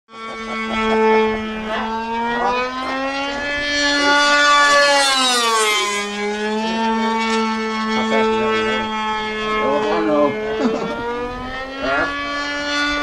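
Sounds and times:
model airplane engine fly-by: 0.1 - 13.0.

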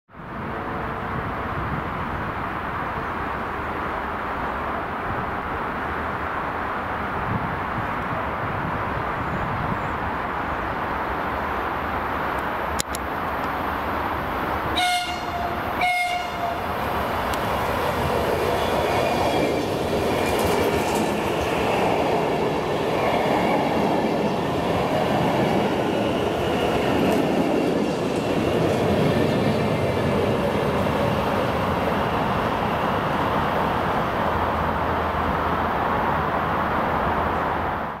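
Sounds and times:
train wheels on rails: 10.0 - 37.9
train horn blasts: 14.8 - 16.7.

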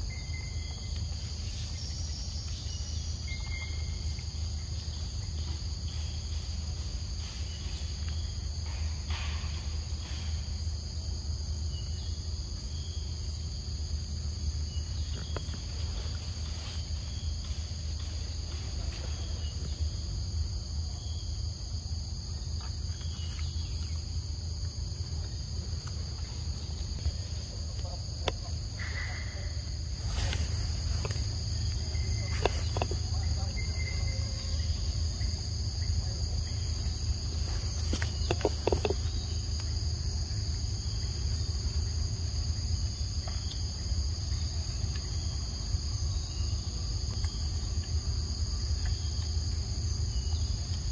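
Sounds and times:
insects buzzing: 0.0 - 50.9
rustles: 14.5 - 21.4, 22.2 - 50.9.

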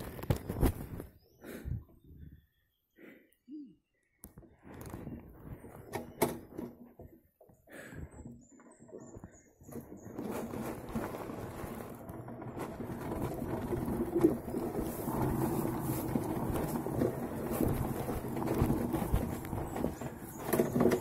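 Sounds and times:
tyres rolling over rough ground: 4.6 - 21.0.

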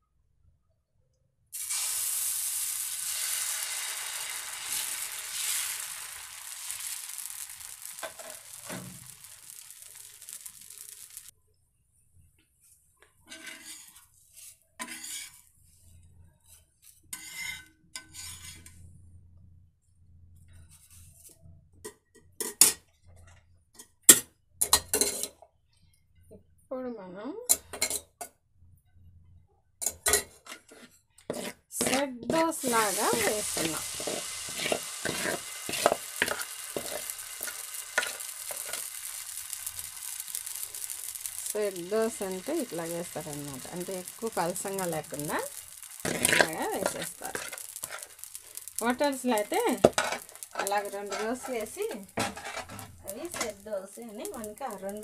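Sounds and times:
metal spatula scraping iron pan: 13.3 - 15.5, 17.1 - 18.8, 29.8 - 53.6.

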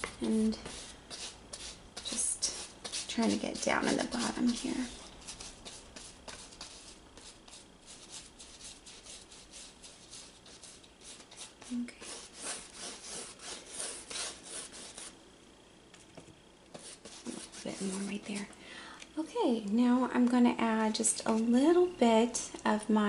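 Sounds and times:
brush scratching on canvas: 0.5 - 15.1, 16.7 - 18.5.

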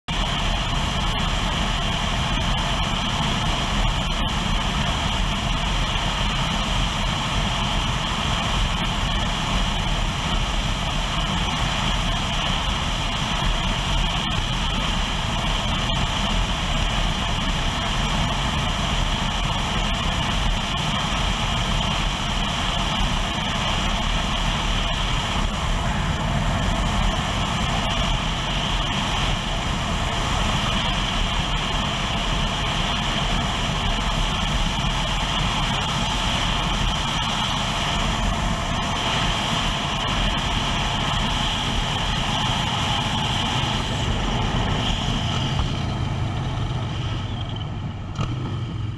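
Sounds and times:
motorcycle running: 0.0 - 48.9
wind rushing over microphone: 0.0 - 48.9.

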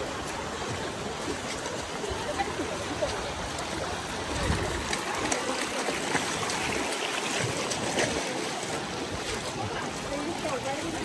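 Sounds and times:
creek rushing over rocks: 0.0 - 11.0.

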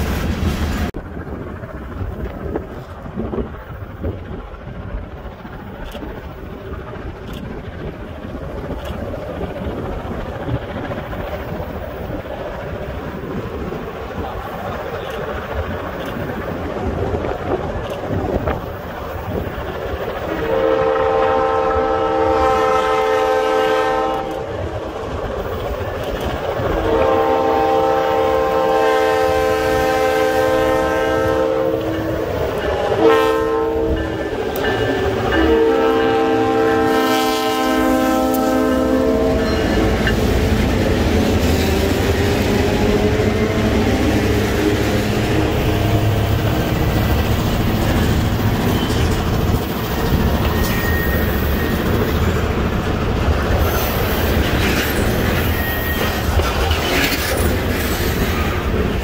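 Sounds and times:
train wheels on rails: 0.0 - 59.0
train air horn: 20.3 - 24.5, 26.8 - 40.0.

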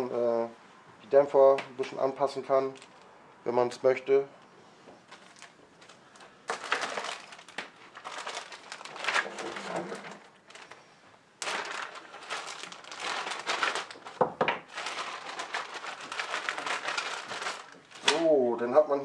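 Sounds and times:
plastic bags crinkling: 2.6 - 3.1, 5.0 - 18.4.

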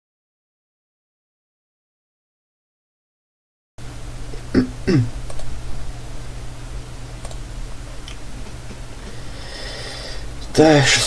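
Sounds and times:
computer mouse clicks: 5.2 - 5.5, 7.2 - 7.4.

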